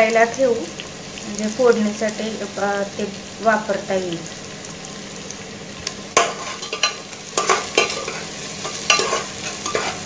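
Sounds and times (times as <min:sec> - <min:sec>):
onion sizzling in hot oil: 0:00.0 - 0:10.0
metal spoon scraping a pot: 0:06.2 - 0:10.0.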